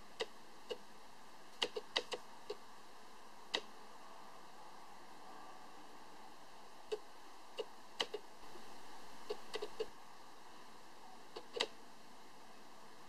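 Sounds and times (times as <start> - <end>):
faint hiss: 0.0 - 13.0
small sharp clicks: 1.6 - 2.6, 7.6 - 8.2, 9.3 - 9.9, 11.3 - 11.8.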